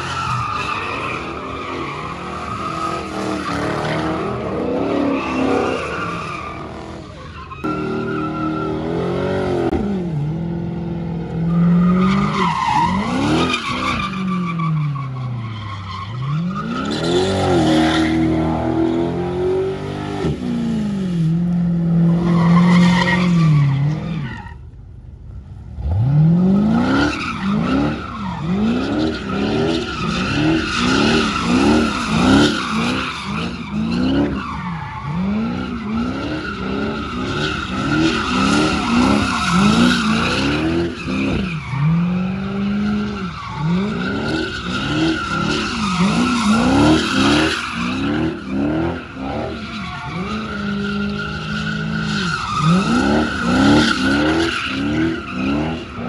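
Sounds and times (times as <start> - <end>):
tyre squeal: 0.0 - 9.0, 26.6 - 56.0
car engine revving: 16.2 - 56.0.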